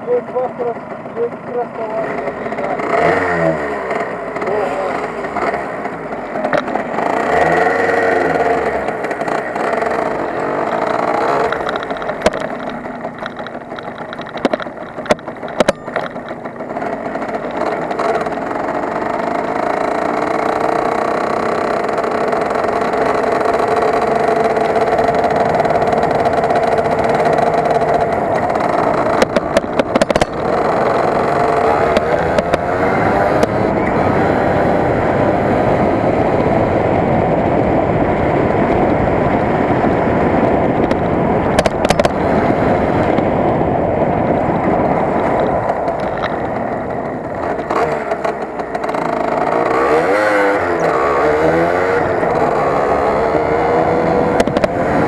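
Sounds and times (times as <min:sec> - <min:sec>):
motorcycle engine running: 0:00.0 - 0:55.0
sharp clicks: 0:09.0 - 0:18.7, 0:21.9 - 0:33.6.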